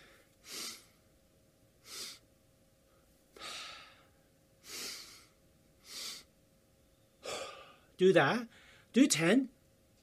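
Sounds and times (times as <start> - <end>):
man breathing: 0.0 - 1.0, 1.8 - 2.3, 2.9 - 6.3, 7.2 - 8.9.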